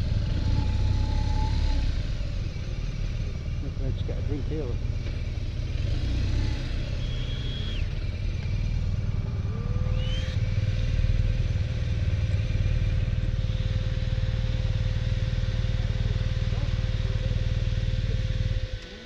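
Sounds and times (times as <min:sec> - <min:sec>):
motorcycle engine rumbling: 0:00.0 - 0:19.0.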